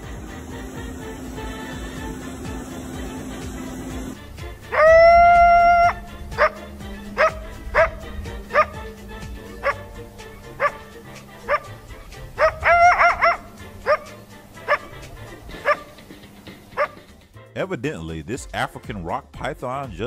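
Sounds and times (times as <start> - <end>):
coyote barking yelps: 4.6 - 16.1, 16.7 - 17.1.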